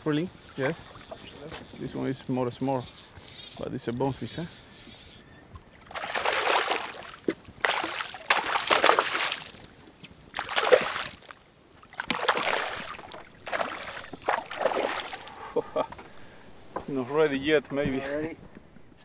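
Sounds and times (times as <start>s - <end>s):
fish splashing at surface: 5.9s - 9.7s, 10.4s - 15.3s.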